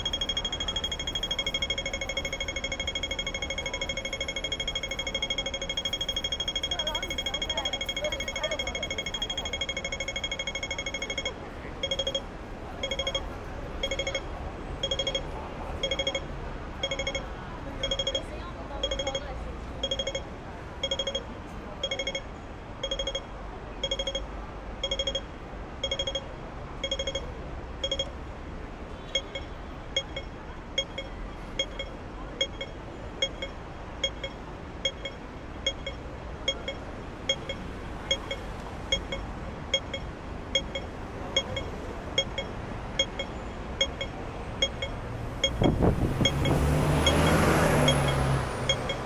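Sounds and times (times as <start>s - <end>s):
crossing signal electronic pips: 0.0s - 28.2s, 29.0s - 49.0s
street traffic hum: 0.0s - 49.0s.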